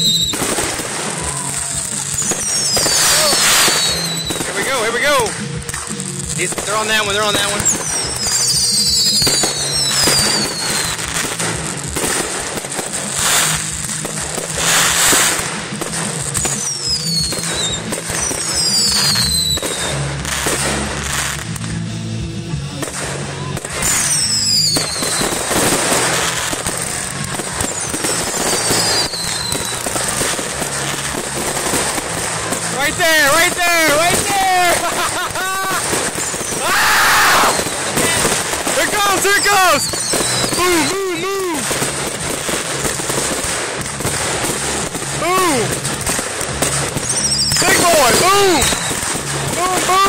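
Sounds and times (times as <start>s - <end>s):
fireworks bangs and crackles: 0.0s - 50.0s
fireworks whistling: 0.0s - 50.0s
music: 0.0s - 50.0s.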